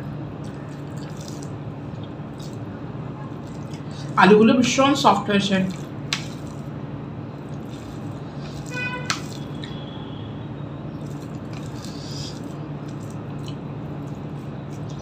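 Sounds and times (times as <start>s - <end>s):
hand squishing food on plate: 0.4s - 2.7s, 5.7s - 6.7s, 7.5s - 9.8s, 11.0s - 15.0s.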